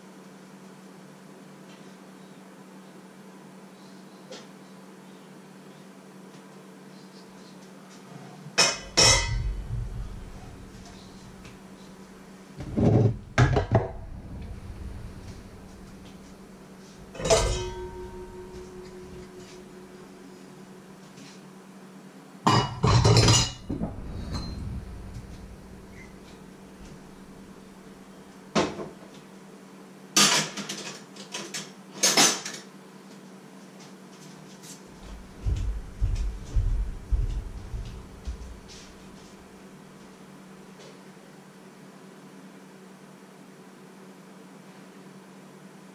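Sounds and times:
crockery clattering: 8.6s - 11.4s, 17.1s - 20.0s, 22.5s - 27.5s
pots and pans clanking: 8.6s - 11.4s, 12.8s - 14.0s, 17.1s - 19.8s, 22.5s - 24.6s.

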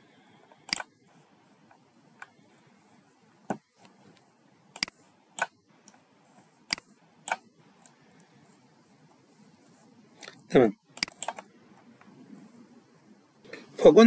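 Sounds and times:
computer mouse clicking: 0.6s - 1.0s, 3.8s - 6.0s, 6.7s - 8.4s, 10.2s - 12.1s.

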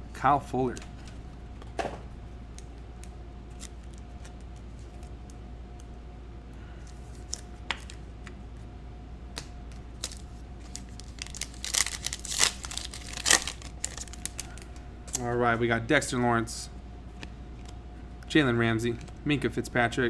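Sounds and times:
faint steady hum: 0.0s - 20.0s
foil wrapper tearing and crinkling: 10.0s - 14.7s.

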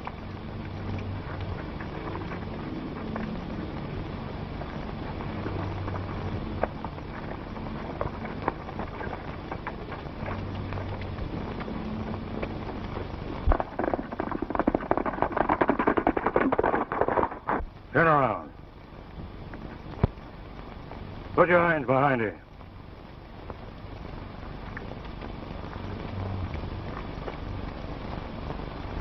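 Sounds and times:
horse hooves on dirt: 0.0s - 17.9s
film soundtrack hiss and crackle: 0.0s - 29.0s.

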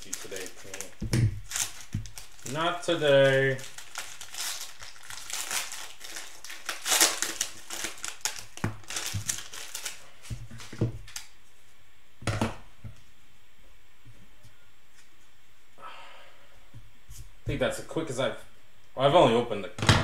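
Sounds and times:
plastic wrapper crinkling: 0.0s - 11.4s.

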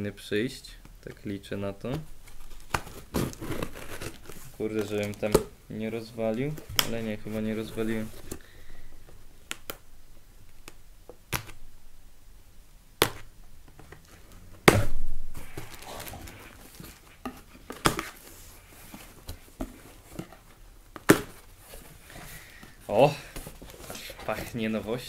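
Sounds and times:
packaging rustling: 2.0s - 5.5s, 14.0s - 24.6s.

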